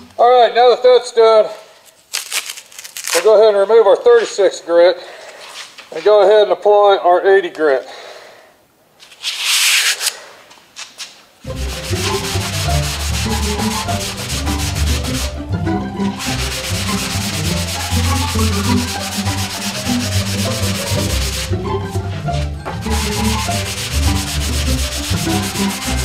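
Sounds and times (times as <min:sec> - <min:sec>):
papery hiss: 0:09.0 - 0:15.4, 0:16.1 - 0:21.5, 0:22.9 - 0:26.0
sandpaper rasping strokes: 0:09.2 - 0:10.2, 0:11.5 - 0:15.4, 0:16.0 - 0:26.0.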